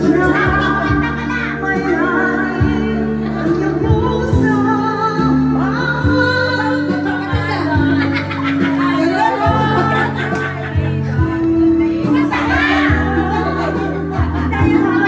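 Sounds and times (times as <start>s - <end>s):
backing music with bass notes: 0.0s - 15.0s
woman singing into a microphone: 0.0s - 15.0s.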